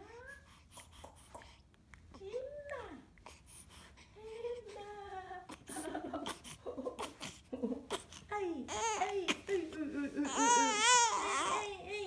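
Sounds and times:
infant cooing and whimpering: 7.0 - 9.4, 10.3 - 11.9.

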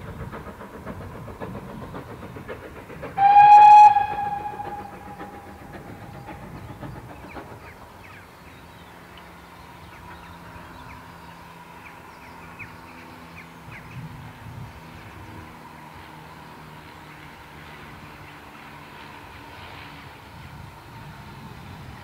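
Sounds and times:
steam train low rumble: 0.0 - 22.0
steam train whistle: 3.2 - 6.4.

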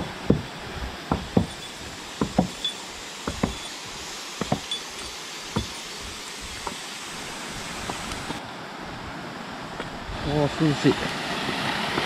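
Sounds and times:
footsteps on wooden boards: 0.0 - 8.4
stream rushing: 0.0 - 12.0.

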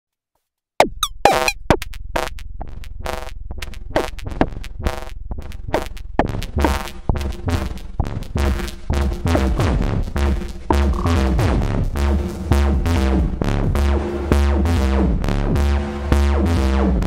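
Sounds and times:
pitched feedback tones: 0.8 - 1.7, 10.7 - 11.5
electronic percussion hits: 0.8 - 12.8
steady low bass: 2.1 - 17.0.

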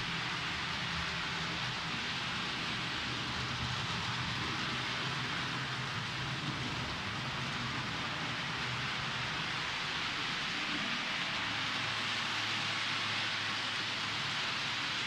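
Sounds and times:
model train wheels on rails: 0.0 - 15.0.

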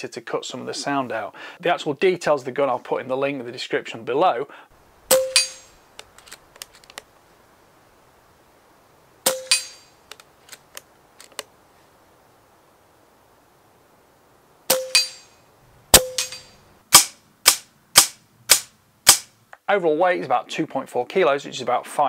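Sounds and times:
air rifle shots: 5.1 - 5.8, 9.2 - 9.9, 15.9 - 19.3.

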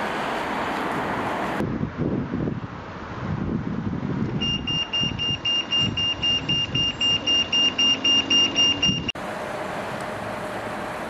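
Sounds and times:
traffic rumble: 0.0 - 11.0
crossing signal rapid high beeps: 4.4 - 9.2.

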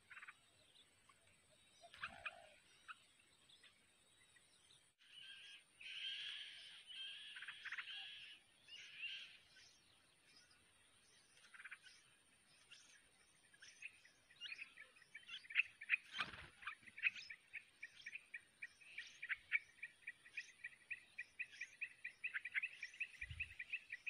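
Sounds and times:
bird chicks chirping: 5.4 - 24.0.

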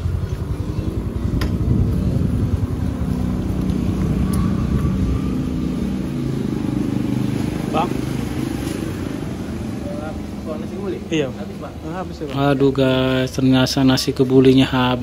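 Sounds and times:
wind buffeting microphone: 0.0 - 7.4
motorcycle engine running: 0.0 - 10.6.

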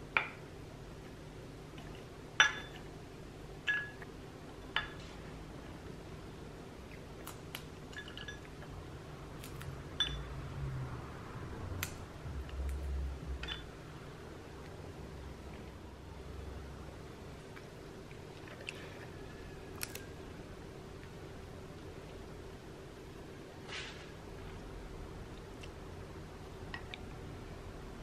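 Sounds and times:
glass clinks: 2.4 - 2.8, 3.7 - 4.0, 7.9 - 8.5, 10.0 - 10.3, 13.4 - 13.7.

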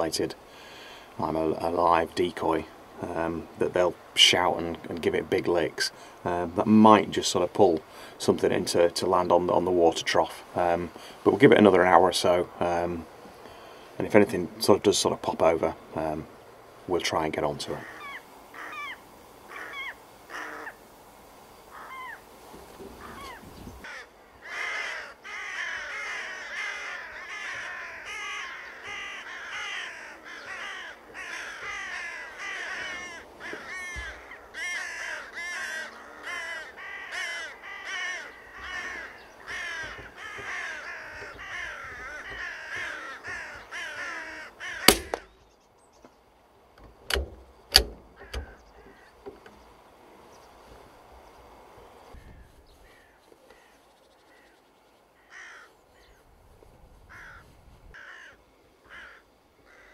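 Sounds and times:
crows cawing: 17.7 - 20.8, 21.7 - 22.2, 23.0 - 45.4, 48.1 - 49.4, 52.2 - 54.6, 55.2 - 56.2, 57.1 - 59.9
sharp crack: 44.8 - 45.4, 47.1 - 48.6.

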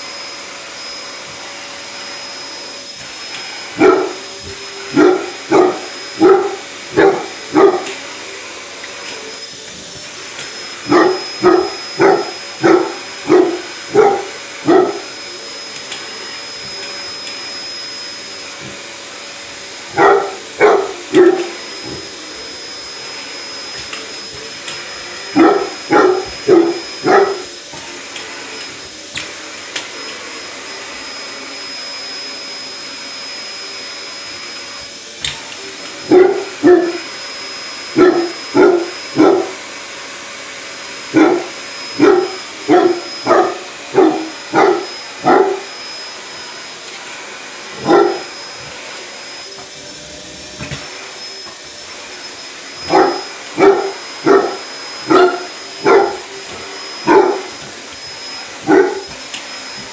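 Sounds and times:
vacuum cleaner whining: 0.0 - 59.9
dog barking: 3.8 - 4.2, 4.9 - 8.0, 10.8 - 15.2, 19.9 - 22.0, 25.3 - 27.5, 36.0 - 37.1, 38.0 - 39.6, 41.1 - 45.7, 47.8 - 48.4, 52.9 - 56.3, 57.0 - 57.6, 58.6 - 59.2.

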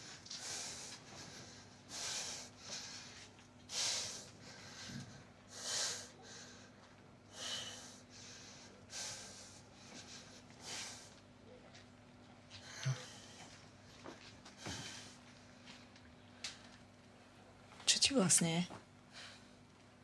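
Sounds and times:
man breathing hard: 0.0 - 11.2, 12.5 - 13.6, 14.6 - 15.2.

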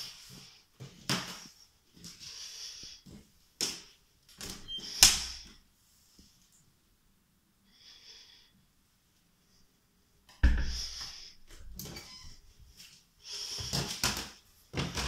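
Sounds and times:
door thumping shut: 10.4 - 10.8.

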